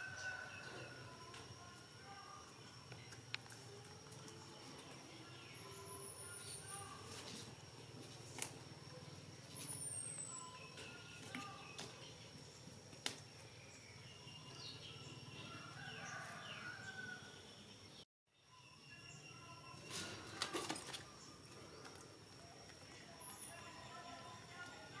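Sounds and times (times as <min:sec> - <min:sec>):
steady high-pitched whine: 0:00.0 - 0:16.4
faint chirps and squeaky calls: 0:00.0 - 0:25.0.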